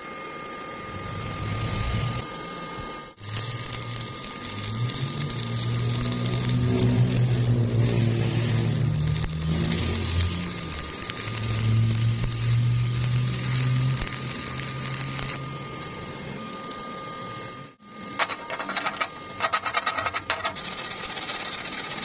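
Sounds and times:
low hum: 0.0 - 20.9
stick welding crackling hiss: 3.2 - 15.8, 20.6 - 22.0.

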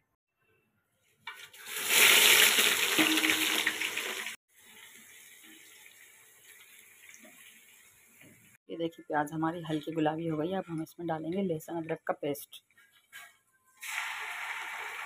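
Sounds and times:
onions sizzling in hot oil: 1.6 - 8.2, 13.8 - 15.0.

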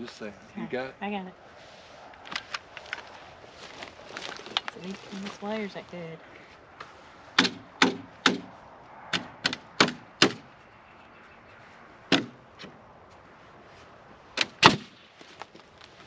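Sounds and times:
nail gun shots: 7.4 - 8.5, 9.2 - 10.4, 14.4 - 15.0.

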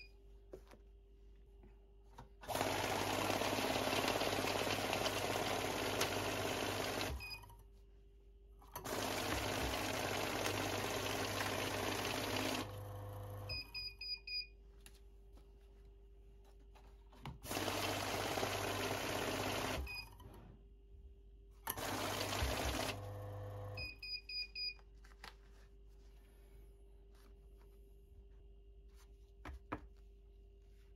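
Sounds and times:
banknote counter whirring: 2.5 - 7.2, 8.8 - 13.5, 17.5 - 19.9, 21.7 - 23.8.

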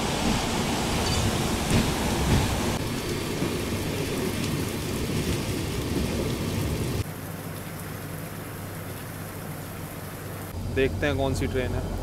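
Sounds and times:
train rumble: 0.0 - 7.0
heavy rain hiss: 0.0 - 12.0.

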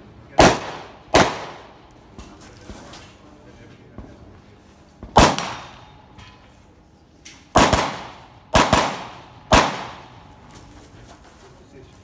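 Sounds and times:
carbine gunshots with echo: 0.4 - 1.9, 5.1 - 6.0, 7.5 - 10.3.

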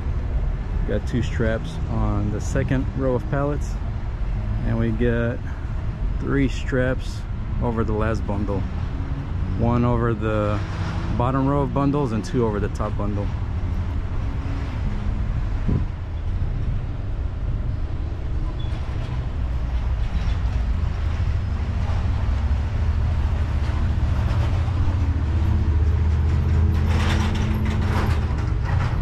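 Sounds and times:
diesel engine droning: 0.0 - 29.0
short clatters: 23.6 - 29.0.

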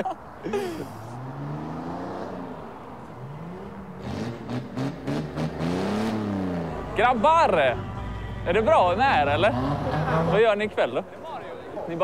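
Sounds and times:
car engine revving: 1.0 - 7.4, 8.4 - 10.8.

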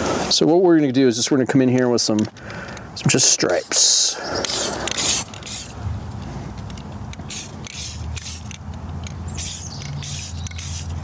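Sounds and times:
spray paint can hissing: 4.4 - 5.8, 7.2 - 8.6, 9.3 - 11.0.

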